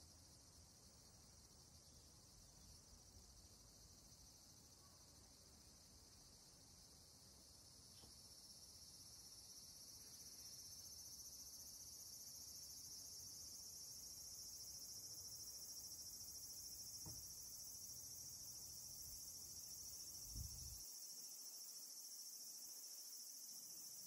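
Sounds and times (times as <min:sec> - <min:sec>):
insects chirring: 0:00.0 - 0:24.0
soft low thump: 0:17.0 - 0:17.4.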